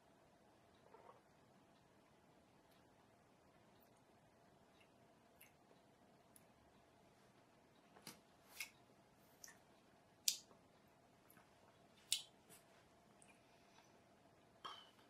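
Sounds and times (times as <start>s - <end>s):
faint room hum: 0.0s - 15.0s.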